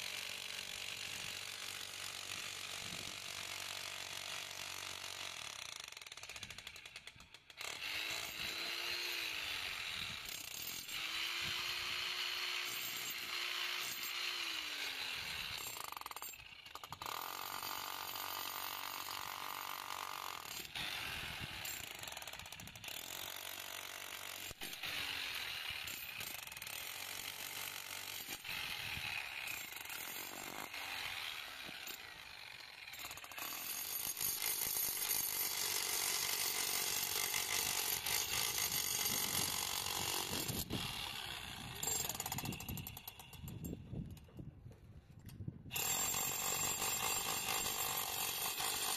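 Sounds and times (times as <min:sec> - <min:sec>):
demolition hammer chipping concrete: 0:45.7 - 0:48.9.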